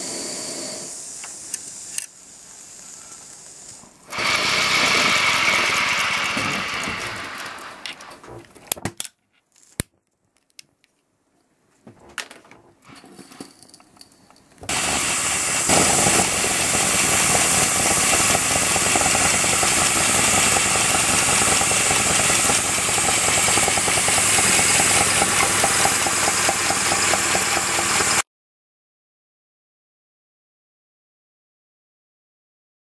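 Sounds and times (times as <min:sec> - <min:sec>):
loud steam hiss: 0:00.0 - 0:08.1, 0:14.7 - 0:28.2
model steam locomotive chuffing: 0:02.7 - 0:08.1, 0:14.7 - 0:28.2.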